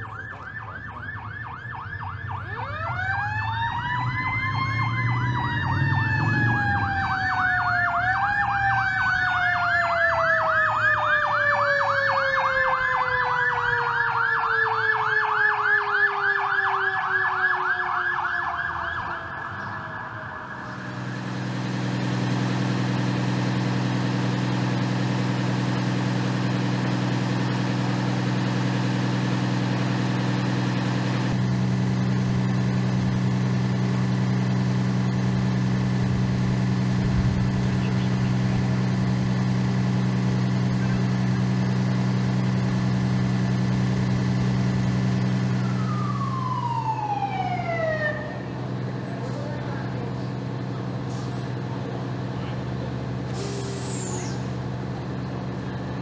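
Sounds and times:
diesel engine idling: 0.0s - 13.9s, 18.7s - 56.0s
electronic siren yelp: 0.0s - 23.1s, 45.3s - 48.5s
fire truck siren wail: 0.0s - 56.0s.

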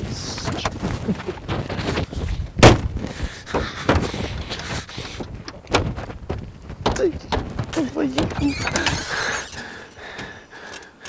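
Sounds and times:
rustling: 0.0s - 10.7s
dull knocks: 2.6s - 4.2s, 5.7s - 8.4s.

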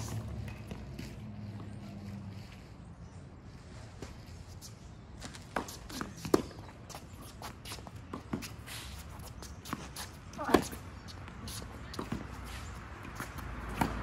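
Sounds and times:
shoes squeaking on court: 0.0s - 14.0s
racket hitting tennis ball: 5.2s - 14.0s
tennis ball bouncing: 5.2s - 14.0s.

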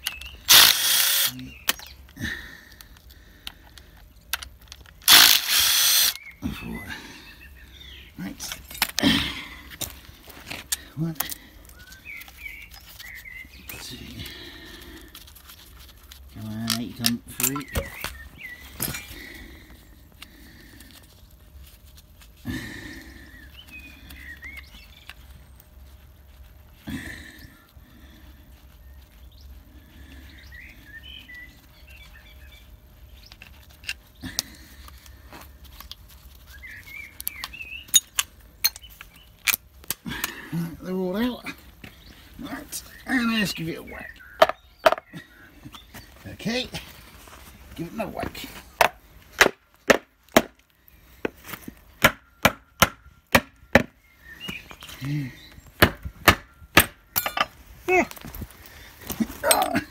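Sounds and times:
birds chirping: 0.0s - 15.3s, 15.9s - 59.9s
hand tools clicking on bolts: 56.2s - 57.6s.

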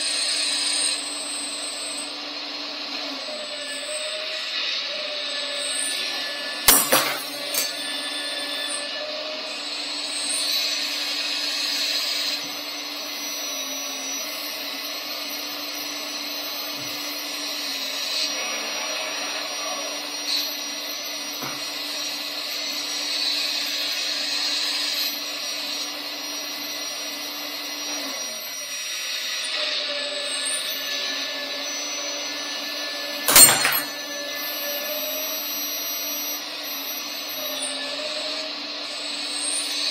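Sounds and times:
hydraulic pump whining: 1.3s - 39.9s.

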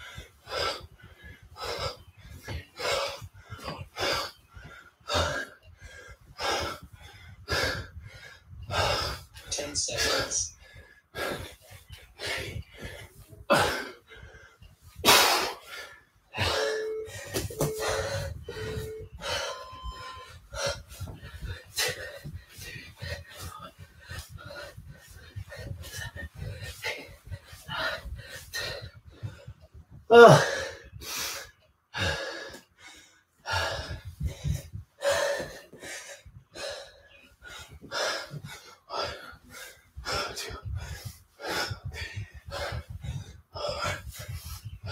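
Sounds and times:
man breathing hard: 0.0s - 44.9s
interval timer beeps: 16.4s - 20.5s.

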